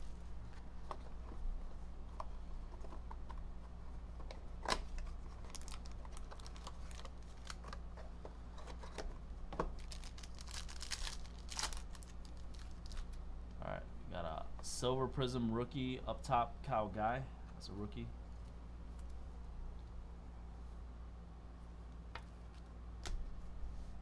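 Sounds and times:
crinkly rustling of wrapper: 0:05.0 - 0:07.8, 0:09.7 - 0:13.2.

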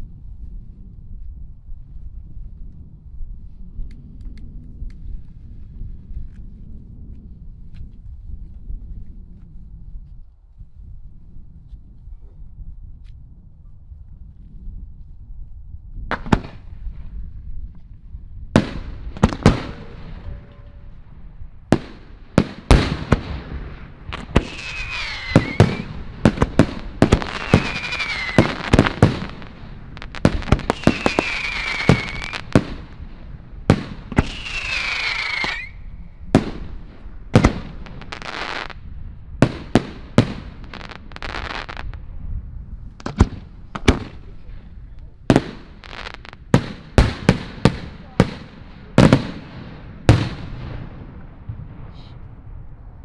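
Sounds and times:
fireworks bangs: 0:18.6 - 0:38.8, 0:39.4 - 0:42.1, 0:43.0 - 0:44.6, 0:45.2 - 0:52.8
fireworks crackling: 0:21.6 - 0:42.1, 0:42.8 - 0:52.1
falling fireworks whistles: 0:24.2 - 0:26.0, 0:27.0 - 0:29.4, 0:30.0 - 0:32.6, 0:34.1 - 0:36.0.

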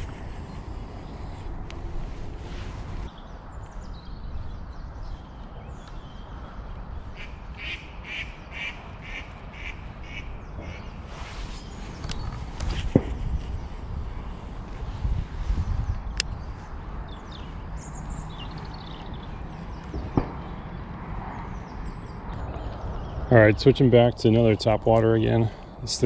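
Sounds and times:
duck quacking: 0:07.6 - 0:10.8.

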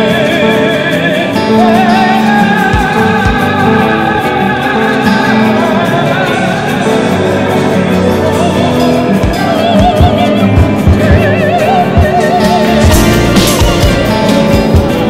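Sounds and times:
high voice singing with vibrato: 0:00.0 - 0:15.0
low drum strokes: 0:09.2 - 0:15.0
orchestra playing: 0:10.2 - 0:15.0.

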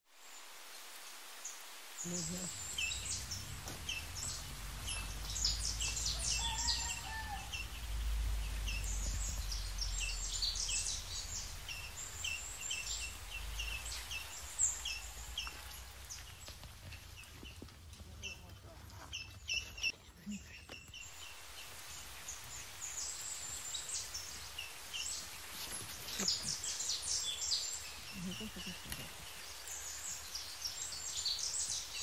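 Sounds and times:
birds chirping: 0:00.2 - 0:32.0.

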